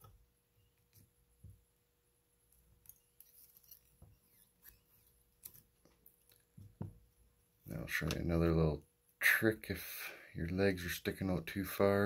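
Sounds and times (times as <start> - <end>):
fingers clicking and rustling: 2.4 - 6.8.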